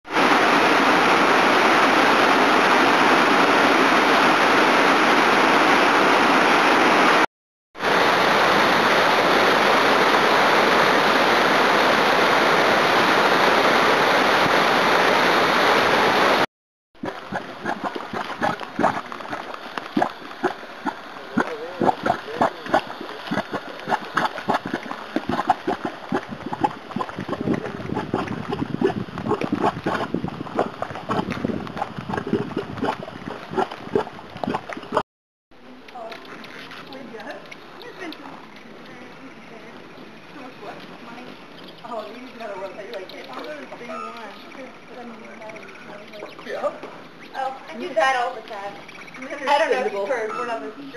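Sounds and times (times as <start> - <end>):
waterfall pouring into pool: 0.1 - 7.2, 7.8 - 27.8
mud pot bubbling and popping: 17.0 - 35.0.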